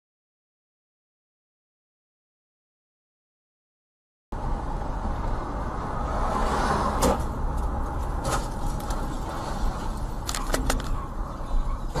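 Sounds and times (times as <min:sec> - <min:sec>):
vehicle road and engine rumble: 0:04.3 - 0:12.0.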